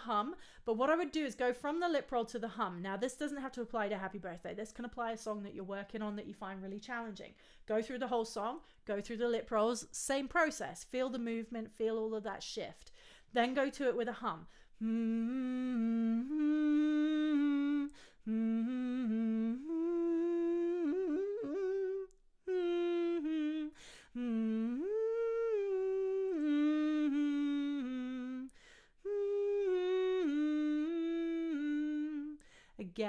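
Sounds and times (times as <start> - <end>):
quick breaths: 12.9 - 13.3, 32.4 - 32.8
woman humming a melody: 14.8 - 32.4.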